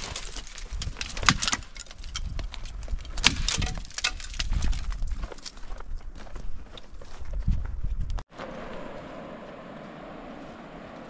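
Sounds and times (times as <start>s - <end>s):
footsteps on stony ground: 0.0s - 11.0s.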